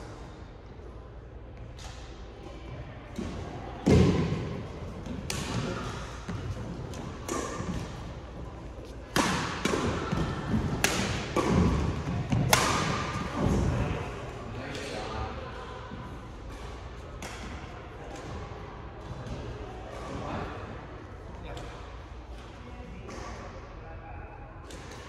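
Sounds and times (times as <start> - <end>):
racket hitting shuttlecock: 3.2 - 8.1, 9.1 - 13.6.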